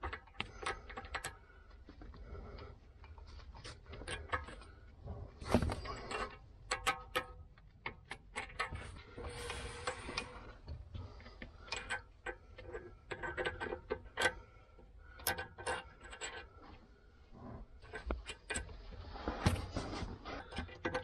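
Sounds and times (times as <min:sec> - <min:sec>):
metal bolt clicking and clinking: 0:05.9 - 0:09.0, 0:11.6 - 0:14.5, 0:15.1 - 0:16.5.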